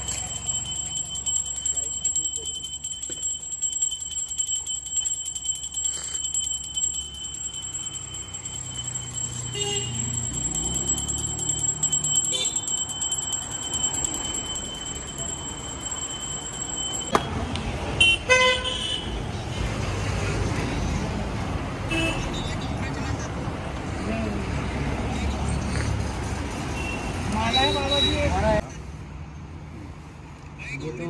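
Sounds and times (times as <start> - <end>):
road traffic passing: 0.0 - 31.0
vehicle horn honking: 9.5 - 10.1.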